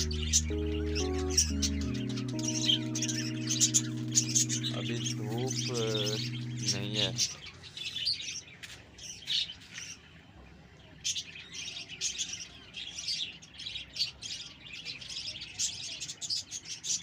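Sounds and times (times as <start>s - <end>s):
budgerigars chattering: 0.0s - 7.4s.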